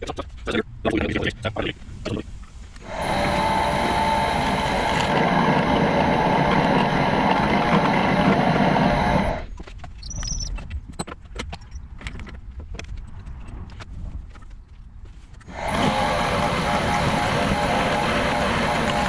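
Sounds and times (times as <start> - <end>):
drill press drilling metal: 2.8 - 9.5, 15.5 - 19.0.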